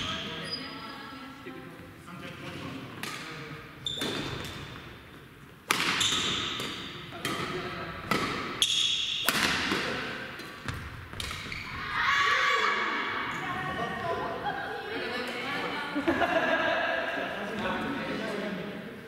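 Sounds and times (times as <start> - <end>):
rackets hitting shuttlecock: 2.9 - 3.4, 4.0 - 4.9, 5.6 - 11.6.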